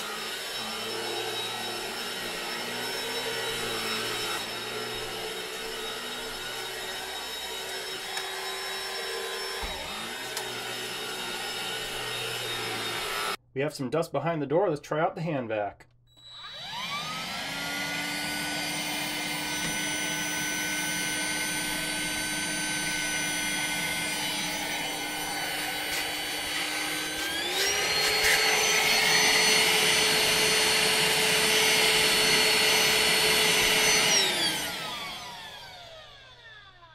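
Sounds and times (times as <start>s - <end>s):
hand vacuum motor whine: 0.0s - 13.4s, 16.1s - 36.9s.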